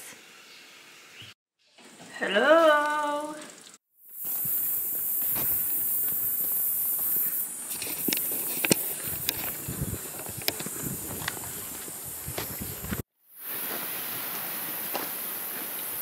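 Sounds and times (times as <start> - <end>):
high-pitched hiss: 2.6 - 16.0
footsteps on gravel: 4.3 - 16.0.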